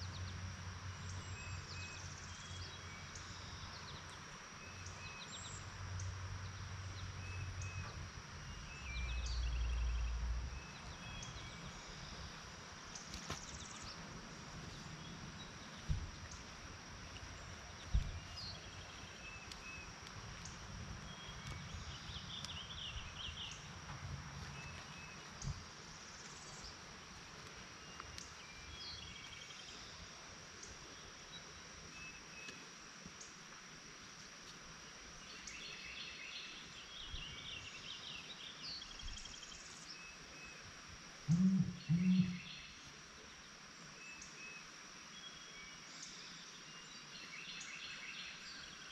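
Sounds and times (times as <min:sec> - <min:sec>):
high-pitched insect drone: 0:38.9 - 0:43.3
low thumps: 0:41.3 - 0:42.4
birds chirping: 0:41.3 - 0:42.8.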